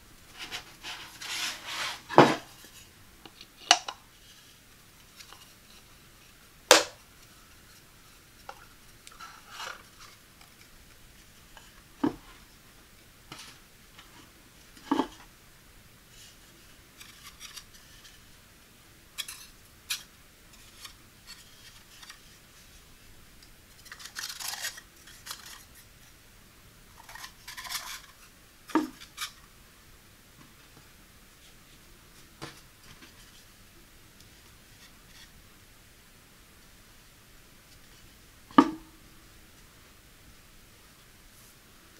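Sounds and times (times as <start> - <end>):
wood scraping on wood: 0.4 - 2.8.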